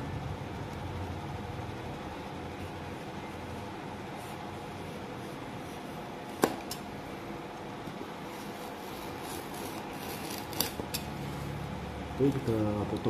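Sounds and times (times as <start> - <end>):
fan-like hum: 0.0 - 13.0.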